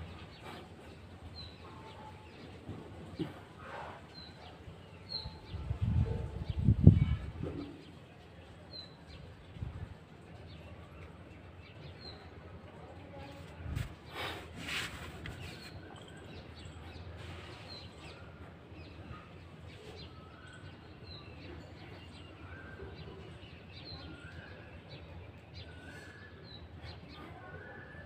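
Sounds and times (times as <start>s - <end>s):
birds chirping: 10.4s - 28.0s.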